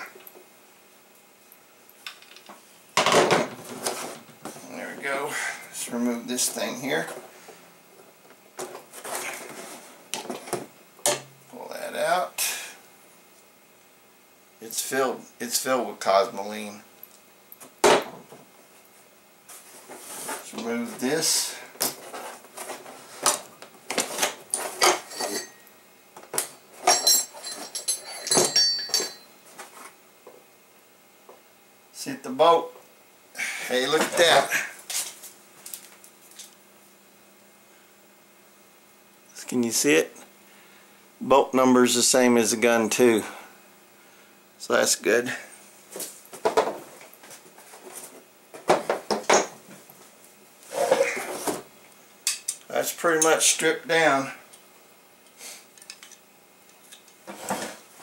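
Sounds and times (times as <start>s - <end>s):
metal parts clinking on wood: 26.8s - 29.3s, 55.8s - 56.2s
ringing metal clatter: 26.9s - 29.3s.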